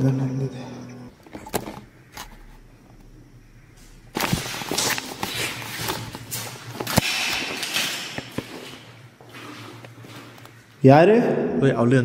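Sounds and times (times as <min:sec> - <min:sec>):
footsteps crunching over debris: 0:03.8 - 0:10.7
sharp cracks: 0:04.1 - 0:08.4.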